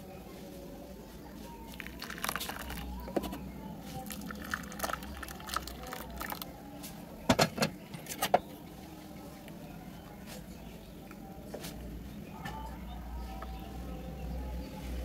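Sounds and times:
liquid pouring into bowls: 1.6 - 6.8.

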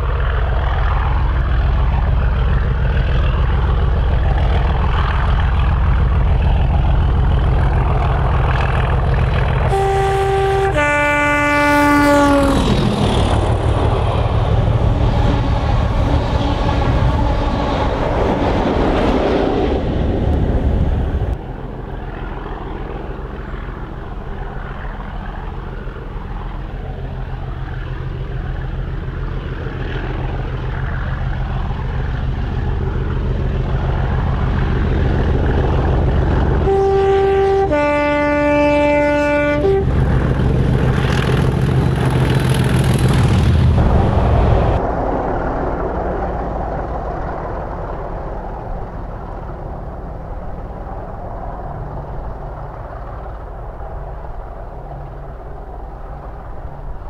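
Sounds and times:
diesel locomotive engine working hard: 0.0 - 57.0
two-tone train horn: 9.6 - 12.8, 14.8 - 17.9, 36.6 - 40.1.

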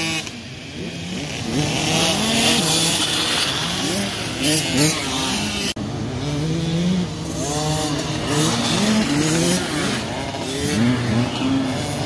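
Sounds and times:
dirt bikes revving: 0.0 - 12.0.

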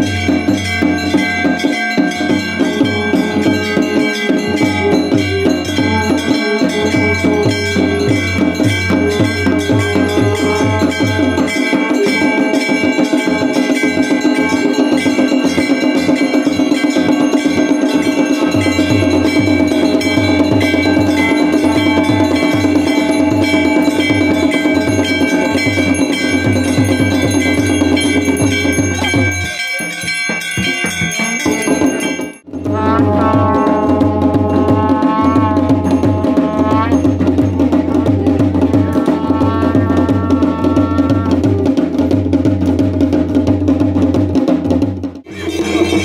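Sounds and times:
held tone: 0.0 - 42.4
bells clanging rapidly: 0.0 - 46.0
drum beating: 0.0 - 46.0
horn blown: 2.7 - 15.0, 20.0 - 26.4, 32.6 - 42.2.

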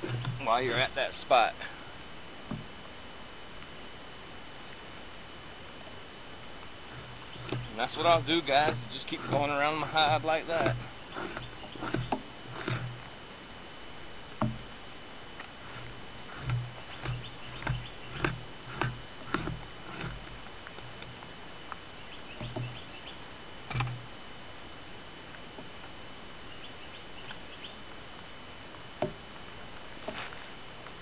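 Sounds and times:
blade scraping hide: 0.0 - 1.3, 6.8 - 13.1, 15.5 - 21.2.

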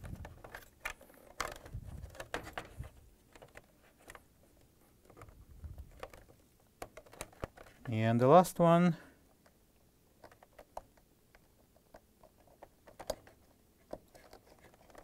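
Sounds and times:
handling noise: 0.0 - 8.4.

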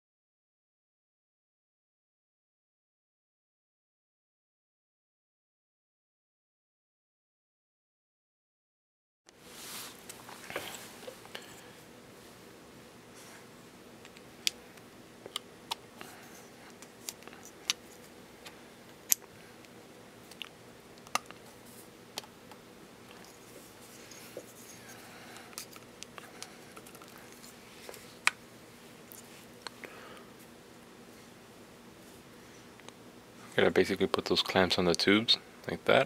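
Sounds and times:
faint steady hum: 9.3 - 36.0.

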